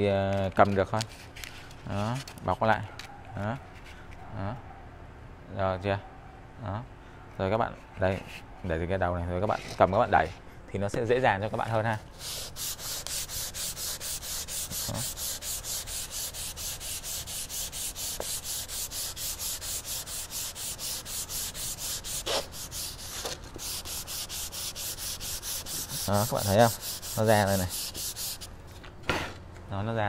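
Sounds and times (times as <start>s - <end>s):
hand sanding wood: 11.2s - 28.5s.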